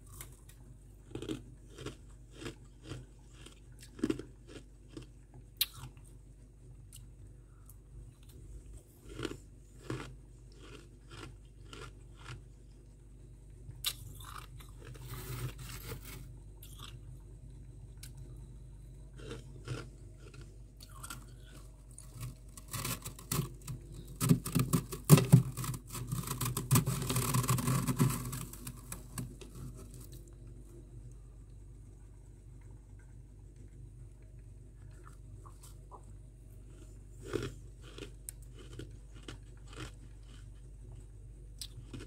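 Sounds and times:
freezer frost crunching: 0:00.0 - 0:06.0, 0:08.1 - 0:12.8, 0:13.8 - 0:17.0, 0:19.2 - 0:31.2, 0:36.6 - 0:40.7.

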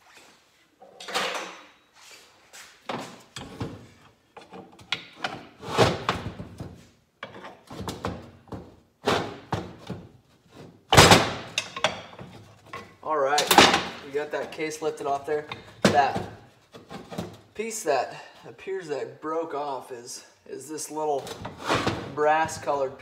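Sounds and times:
metal clunks and scrapes: 0:02.9 - 0:14.6, 0:21.2 - 0:22.9.

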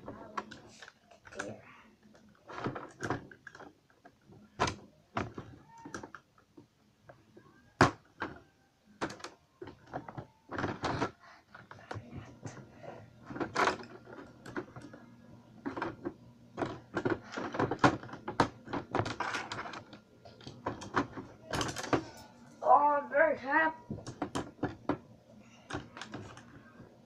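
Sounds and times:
plastic bricks clicking: 0:15.6 - 0:22.0.

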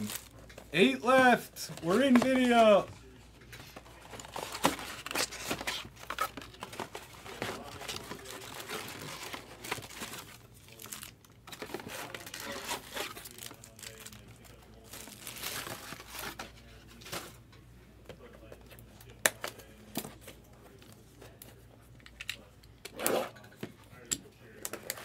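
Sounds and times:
plastic wrappers crinkling: 0:00.0 - 0:01.0, 0:03.8 - 0:16.6.

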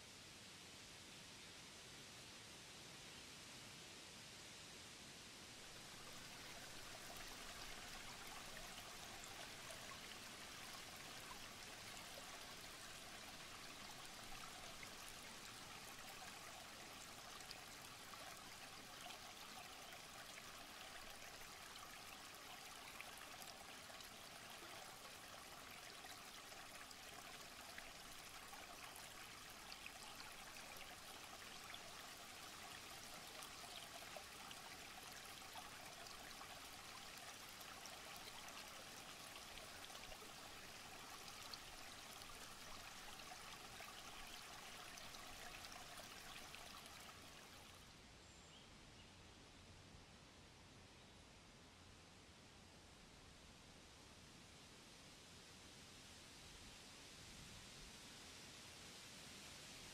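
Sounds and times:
stream trickling over stones: 0:05.5 - 0:47.9.

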